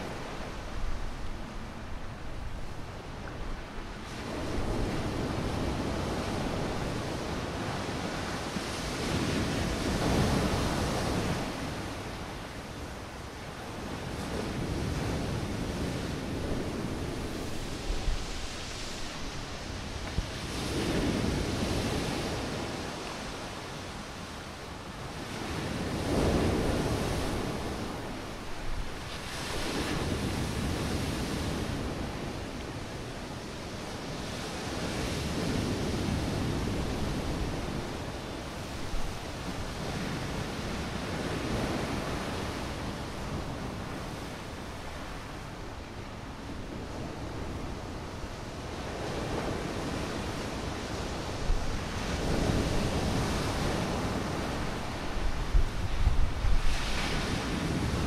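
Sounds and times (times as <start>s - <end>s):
wind blowing: 0.0s - 58.0s
sea waves breaking: 48.7s - 58.0s.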